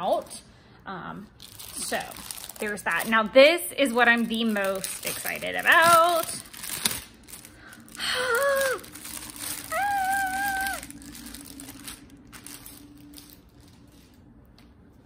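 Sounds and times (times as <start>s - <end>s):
plastic packaging crinkling: 1.3s - 14.6s
woman making wordless vocal sounds: 9.7s - 10.9s.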